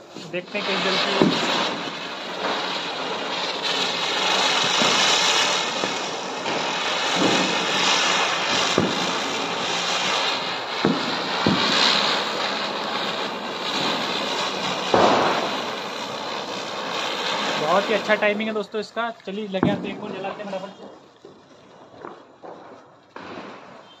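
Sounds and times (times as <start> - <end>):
firecracker spinning and hissing: 0.0 - 24.0
sharp pops: 14.9 - 15.6.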